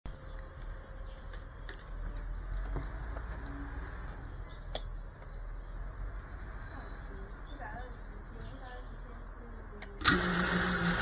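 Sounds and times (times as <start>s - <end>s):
birds chirping: 0.1s - 10.0s
low city rumble: 0.1s - 11.0s
sharp click: 4.7s - 4.9s.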